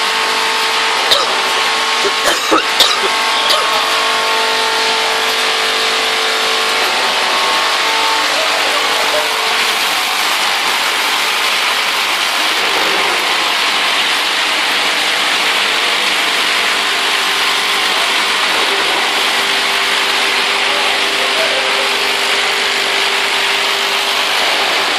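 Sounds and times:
faint motor hum: 0.0 - 12.6.

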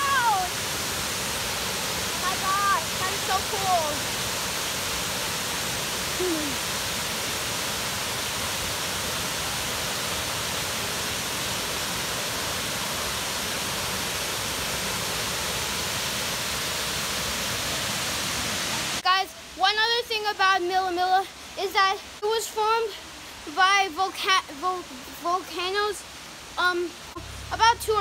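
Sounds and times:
waterfall rushing: 0.0 - 28.0.

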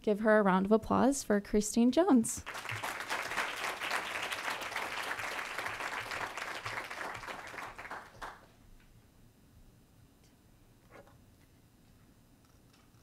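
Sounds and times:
audience applauding: 2.4 - 8.5.

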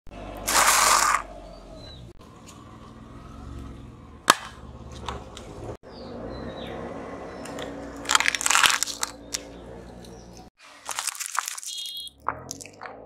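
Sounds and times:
sharp cracks: 0.4 - 1.3, 4.2 - 4.6, 7.4 - 9.5
tyre crushing plastic items: 0.4 - 1.3, 8.0 - 9.5, 10.6 - 12.7.

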